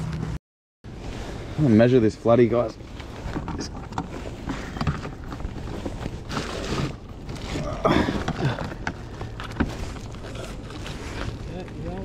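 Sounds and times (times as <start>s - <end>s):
fish handling rustling and knocks: 2.7s - 12.0s.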